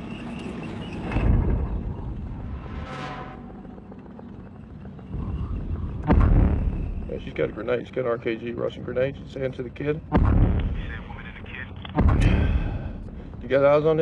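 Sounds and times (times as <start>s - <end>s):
vehicles rumbling: 0.0s - 14.0s
heavy thud: 6.0s - 7.0s, 10.1s - 10.9s, 12.0s - 13.3s.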